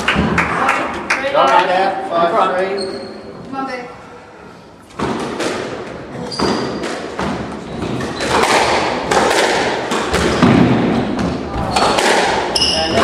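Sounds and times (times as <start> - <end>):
squash ball hitting rackets and walls: 4.8 - 13.0.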